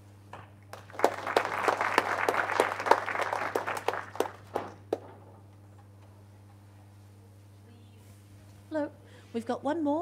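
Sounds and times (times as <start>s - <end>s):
audience applauding: 0.7s - 5.1s.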